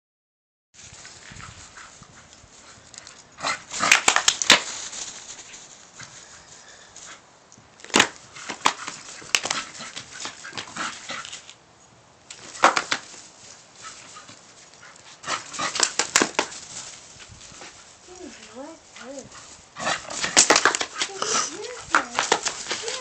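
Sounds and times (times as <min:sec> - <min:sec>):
dog making sharp noisy sounds: 0:03.4 - 0:04.7, 0:08.3 - 0:11.5, 0:13.8 - 0:16.8, 0:18.9 - 0:23.0.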